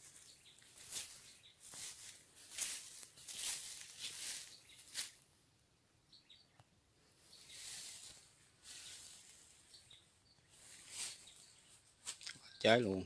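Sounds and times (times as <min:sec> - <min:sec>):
footsteps through grass: 0:00.0 - 0:05.3, 0:07.2 - 0:12.4
faint bird chirps: 0:06.0 - 0:13.0.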